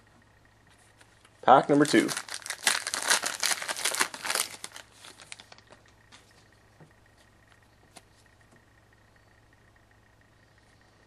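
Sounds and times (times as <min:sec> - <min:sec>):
low steady hum: 0:00.0 - 0:11.0
foil pack crinkling: 0:01.6 - 0:05.8.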